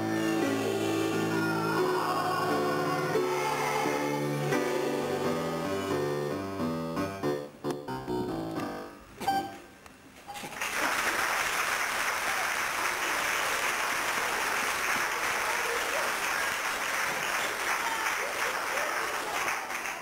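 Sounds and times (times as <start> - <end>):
audience applauding: 10.4 - 20.0.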